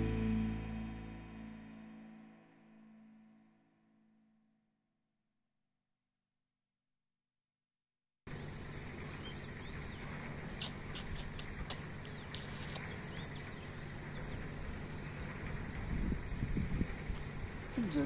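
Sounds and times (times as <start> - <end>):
faint bird chirps: 8.3 - 15.6.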